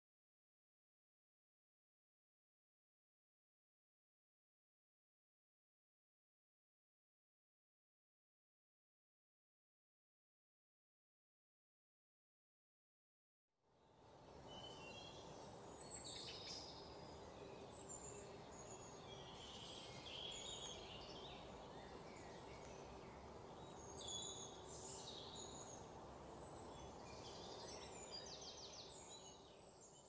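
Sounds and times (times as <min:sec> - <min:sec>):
low background hiss: 0:13.8 - 0:30.0
small birds chirping: 0:14.2 - 0:30.0.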